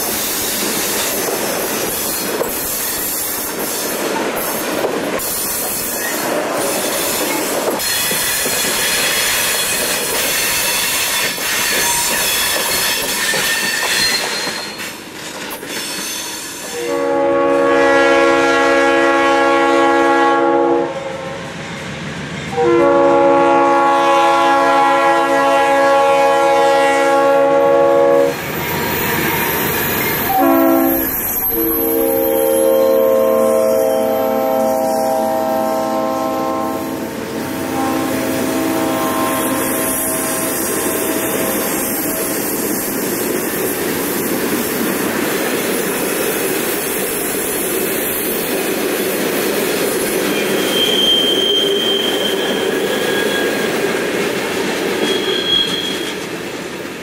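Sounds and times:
wheels clacking over rail joints: 0:00.0 - 0:16.7
freight train rolling past: 0:00.0 - 0:57.0
locomotive air horn blasts: 0:16.7 - 0:21.4, 0:22.5 - 0:28.4, 0:30.2 - 0:42.0
wheels squealing: 0:50.2 - 0:56.2.

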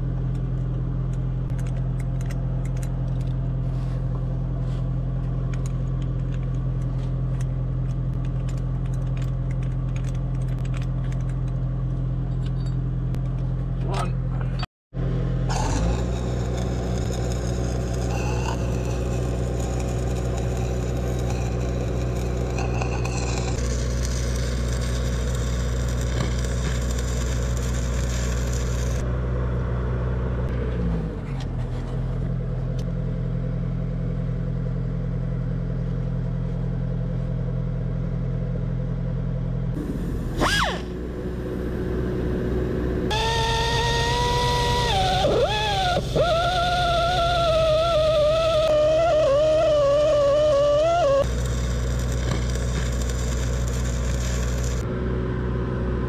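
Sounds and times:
engine drone: 0:00.0 - 0:56.0
die grinder whine: 0:15.0 - 0:29.1, 0:39.8 - 0:54.9
stick welding crackling: 0:15.5 - 0:29.0, 0:43.1 - 0:54.9.

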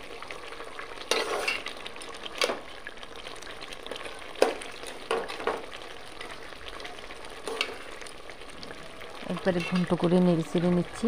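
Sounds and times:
fish sizzling in a pot: 0:00.0 - 0:11.0
metal spatula scraping a pot: 0:01.1 - 0:01.7.

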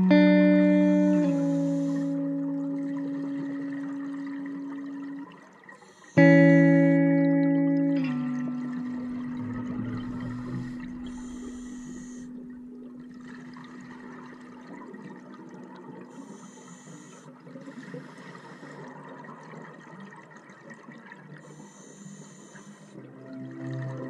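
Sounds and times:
regulator inhalation hisses: 0:00.8 - 0:02.2, 0:05.8 - 0:06.3, 0:10.0 - 0:12.5, 0:16.1 - 0:18.9, 0:21.4 - 0:23.0
gurgling exhaled bubbles: 0:00.9 - 0:16.3.

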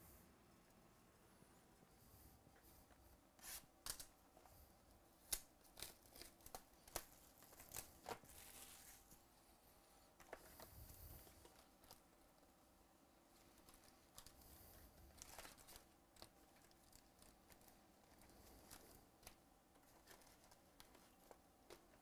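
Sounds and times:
plastic shrink wrap tearing: 0:05.2 - 0:09.1, 0:15.1 - 0:21.0.

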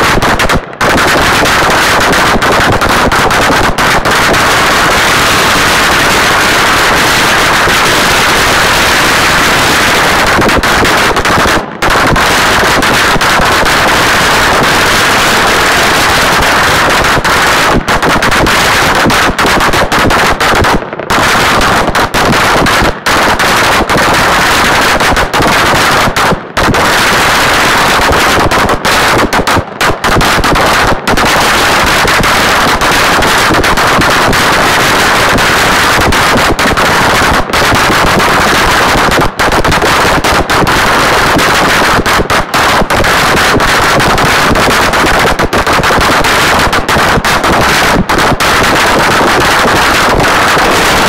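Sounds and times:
firecrackers rapid crackle: 0:00.0 - 0:51.0.

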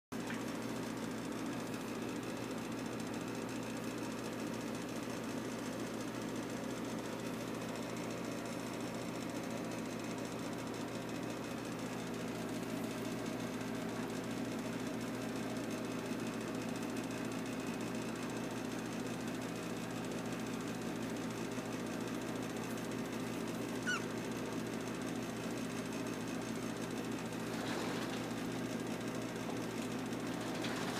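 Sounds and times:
low mechanical hum: 0:00.2 - 0:30.9
puppy squeak: 0:23.8 - 0:24.1.

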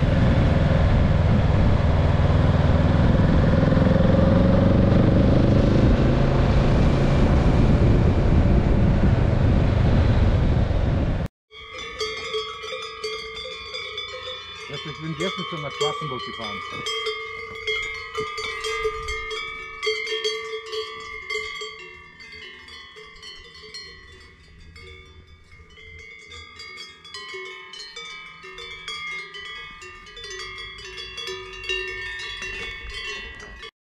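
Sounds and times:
cowbells clanking: 0:11.5 - 0:33.7.

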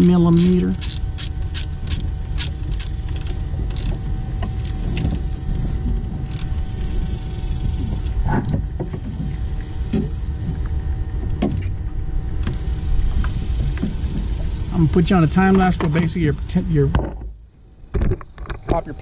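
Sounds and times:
steady low rumble: 0:00.0 - 0:19.0
ratchet wrench clicking: 0:00.4 - 0:04.0, 0:06.3 - 0:06.5.

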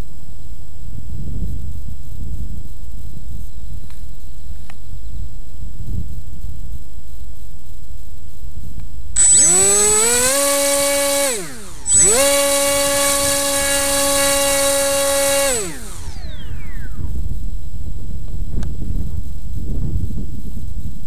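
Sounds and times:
drone motors whining: 0:09.2 - 0:17.2.

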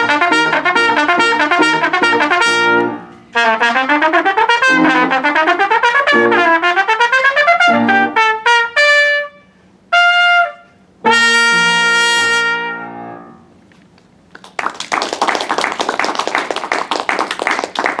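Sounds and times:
piano chord: 0:00.0 - 0:03.4, 0:04.6 - 0:05.3, 0:07.7 - 0:08.2, 0:11.0 - 0:13.7
trumpet notes: 0:00.0 - 0:13.5
audience applause: 0:14.4 - 0:18.0.

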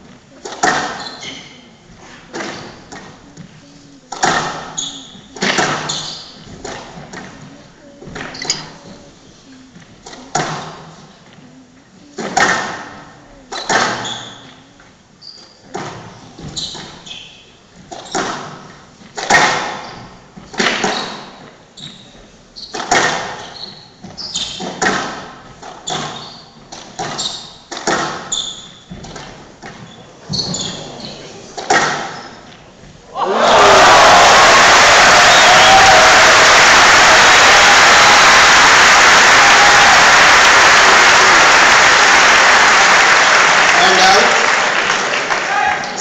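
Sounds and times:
squash ball struck by rackets: 0:24.6 - 0:28.3.

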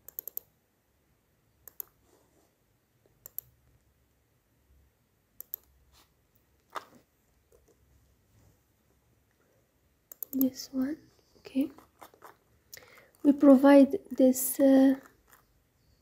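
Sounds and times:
keyboard and mouse clicks: 0:00.0 - 0:00.5, 0:01.6 - 0:02.0, 0:03.1 - 0:03.6, 0:05.4 - 0:05.8, 0:10.1 - 0:10.6.

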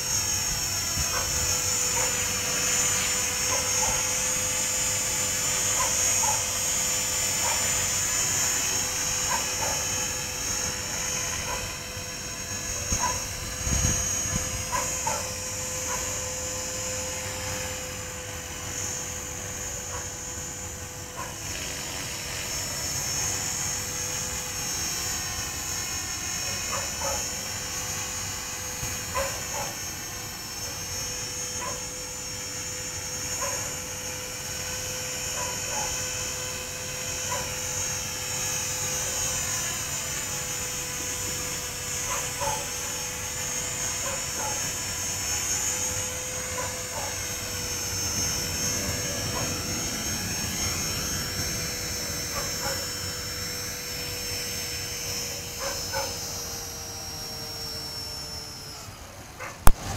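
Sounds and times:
rc helicopter rotor whine: 0:00.0 - 0:59.9.

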